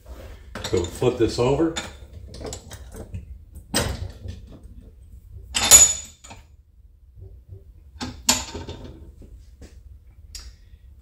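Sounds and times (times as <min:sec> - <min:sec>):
metal handling clatter: 0:00.6 - 0:04.9, 0:05.5 - 0:06.5.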